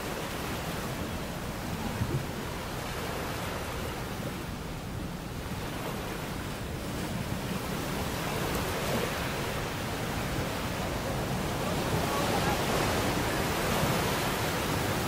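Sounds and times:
surf breaking over rocks: 0:05.5 - 0:15.0.

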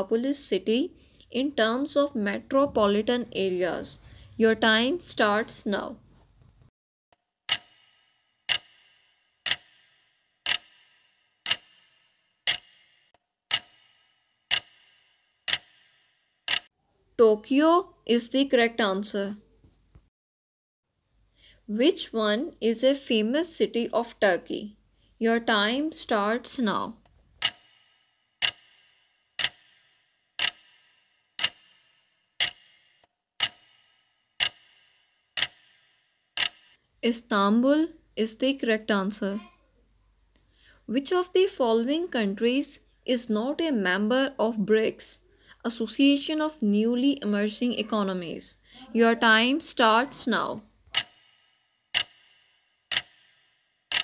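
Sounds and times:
clock ticking with short ring: 0:07.5 - 0:16.7, 0:27.4 - 0:36.8, 0:50.9 - 0:54.0.

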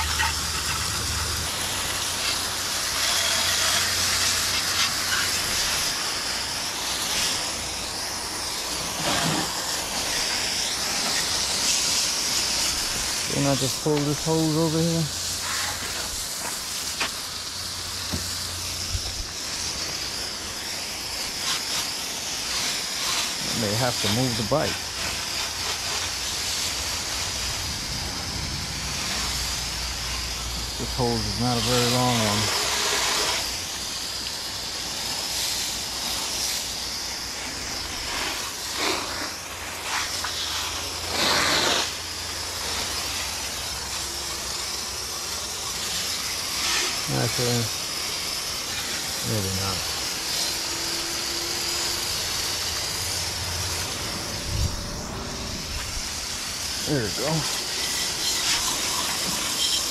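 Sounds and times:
water hissing from hose nozzle: 0:00.0 - 0:59.9
hose knocking: 0:18.0 - 0:19.3.

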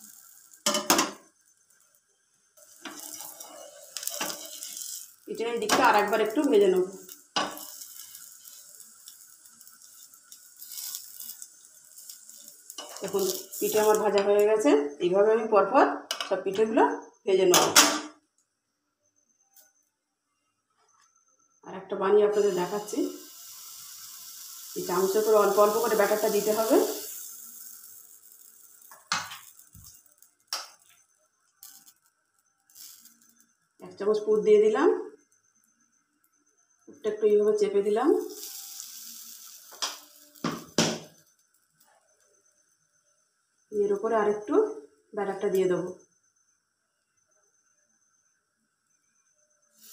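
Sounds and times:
batter sizzling in a pan: 0:00.0 - 0:14.6, 0:22.2 - 0:34.6, 0:35.4 - 0:44.9, 0:49.7 - 0:49.9
kitchen utensils clinking: 0:02.6 - 0:08.8.

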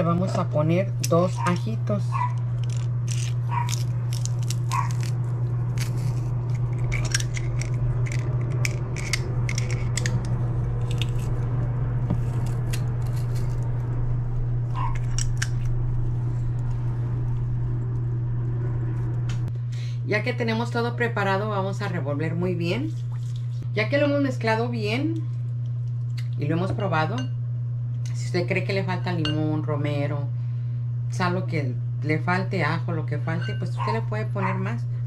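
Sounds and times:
steady low hum: 0:00.0 - 0:35.0
garlic press crunching: 0:02.2 - 0:11.4.

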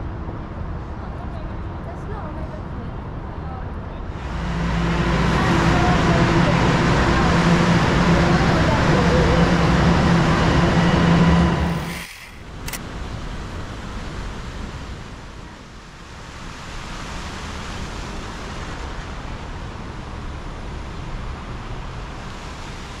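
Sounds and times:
subway train rumbling: 0:00.0 - 0:23.0
city hiss: 0:04.1 - 0:23.0.

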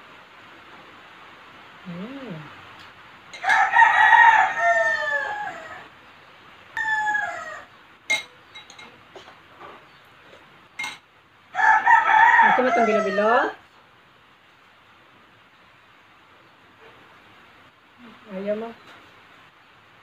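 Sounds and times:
rooster crowing: 0:03.4 - 0:06.0, 0:06.8 - 0:07.8, 0:11.5 - 0:13.6.

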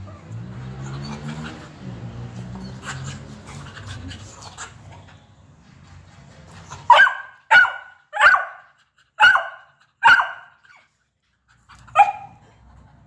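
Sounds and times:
dog barking: 0:06.9 - 0:10.5, 0:11.9 - 0:12.4.

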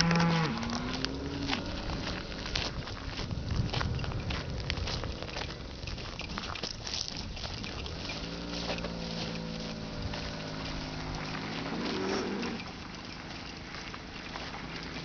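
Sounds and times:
cow mooing: 0:00.0 - 0:02.5, 0:08.1 - 0:12.8
footsteps on gravel: 0:00.0 - 0:15.0.

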